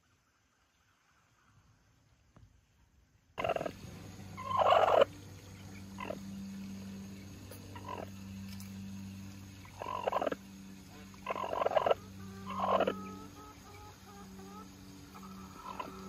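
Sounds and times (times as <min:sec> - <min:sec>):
steady low hum: 0:03.2 - 0:16.0
hen giving harsh calls: 0:03.4 - 0:05.1, 0:07.7 - 0:08.1, 0:09.6 - 0:16.0.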